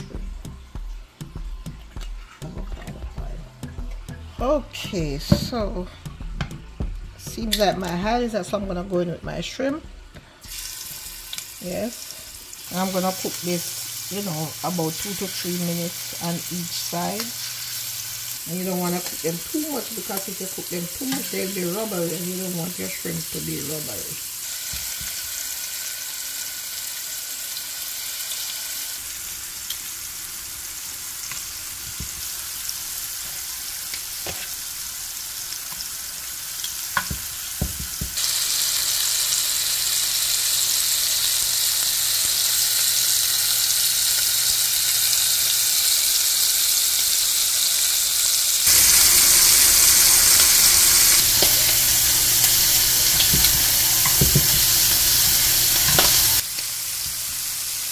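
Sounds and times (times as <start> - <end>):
shrimp sizzling in frying pan: 10.4 - 57.9.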